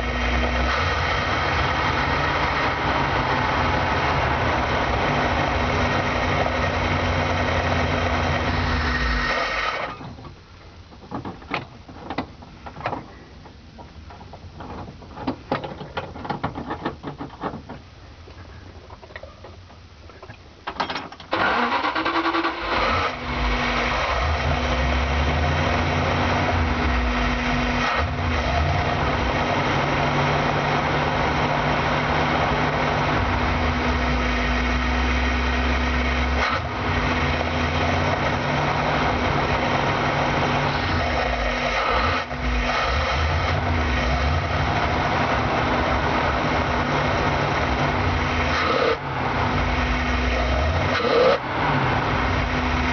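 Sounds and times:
van engine running: 0.0 - 52.9
starter cranking with whine: 20.8 - 25.1.

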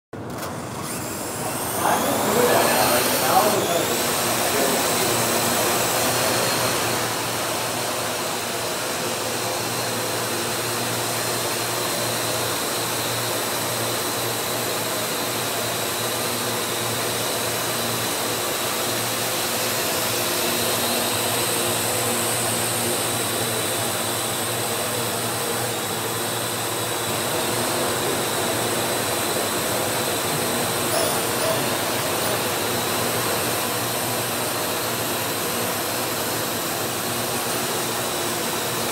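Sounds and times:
drone rotors whirring: 0.3 - 38.9.

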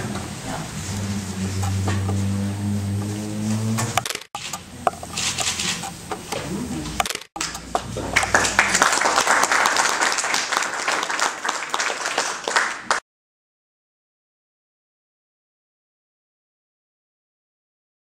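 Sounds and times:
scattered claps: 7.4 - 13.0
murmured voices: 7.8 - 9.2
audience applauding: 7.8 - 13.0.

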